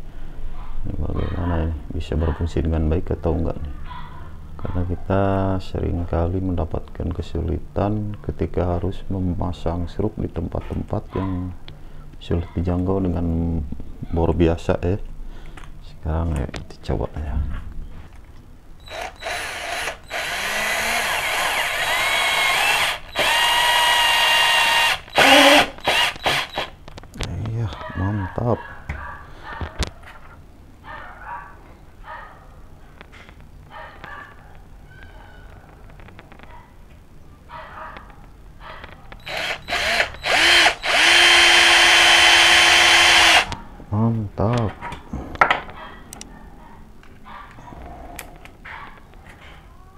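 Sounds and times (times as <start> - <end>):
cordless drill driving screw: 18.8 - 26.7, 39.2 - 43.6.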